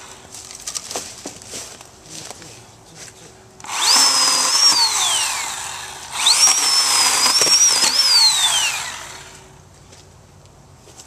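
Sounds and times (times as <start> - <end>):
electric chainsaw motor whining: 3.6 - 9.6.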